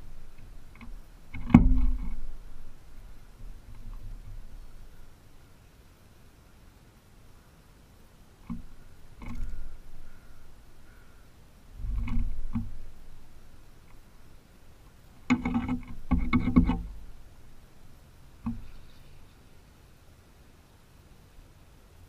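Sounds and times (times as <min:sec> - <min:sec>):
bird scraping and knocking on wood: 0:00.2 - 0:02.6, 0:08.4 - 0:10.3, 0:11.8 - 0:13.2, 0:15.2 - 0:17.0, 0:18.4 - 0:19.0.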